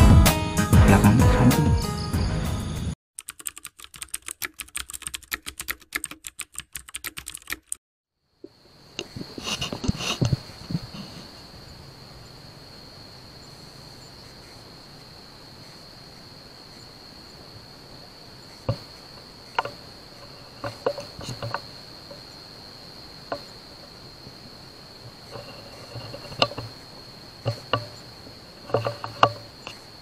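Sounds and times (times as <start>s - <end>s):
crickets chirping: 8.1s - 30.0s
sharp clicks and knocks: 19.5s - 22.2s, 25.3s - 26.8s, 27.4s - 28.0s, 28.6s - 29.8s.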